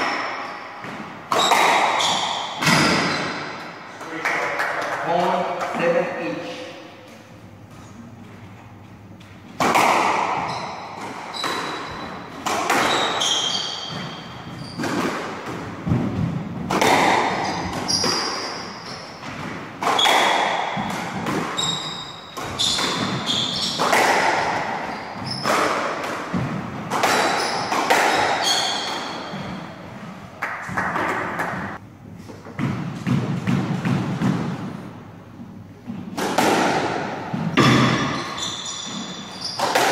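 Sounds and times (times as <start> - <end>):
squash ball hits: 0.0 - 3.8, 9.5 - 29.7, 30.4 - 31.8, 32.4 - 34.9, 35.8 - 39.9
shoes squeaking on wooden floor: 10.3 - 15.0, 17.3 - 20.2, 21.5 - 26.4, 27.0 - 29.8, 37.5 - 39.9.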